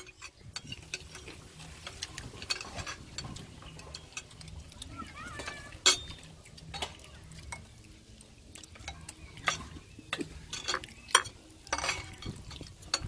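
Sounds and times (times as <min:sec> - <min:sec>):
metal spoon clinking on ceramic: 0:10.5 - 0:13.0.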